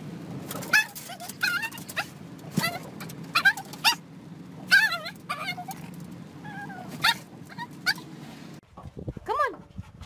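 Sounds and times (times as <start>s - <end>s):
moving car rumble: 0.0s - 9.8s
small dog barking and yelping: 0.6s - 4.0s, 4.6s - 8.2s.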